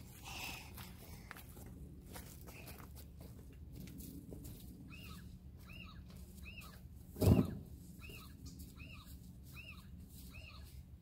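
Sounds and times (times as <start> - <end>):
bird chirping: 4.9 - 10.8
dull thump: 7.2 - 7.7.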